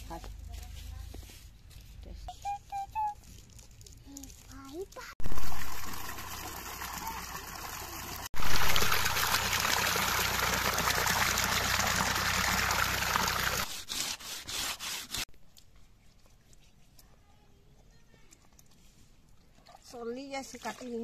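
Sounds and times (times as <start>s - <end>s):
water pouring into metal basin: 5.2s - 13.7s.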